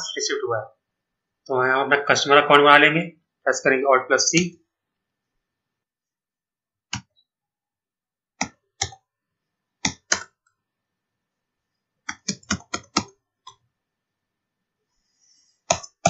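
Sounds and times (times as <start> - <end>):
computer keyboard keystrokes: 8.4 - 9.0, 9.8 - 10.4, 12.1 - 13.6, 15.7 - 16.0.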